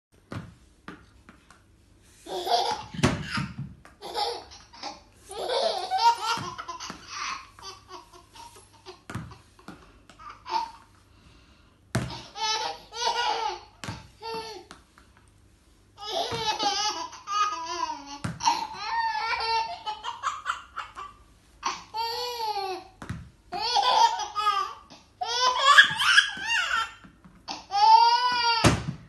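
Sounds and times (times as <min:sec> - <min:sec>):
baby laughing: 0:02.2 - 0:09.6, 0:10.2 - 0:10.9, 0:12.1 - 0:14.7, 0:16.0 - 0:22.9, 0:23.6 - 0:28.7.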